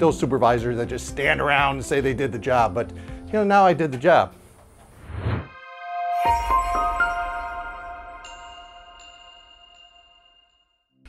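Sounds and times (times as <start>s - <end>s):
bell-like chiming music sting: 6.0s - 10.9s.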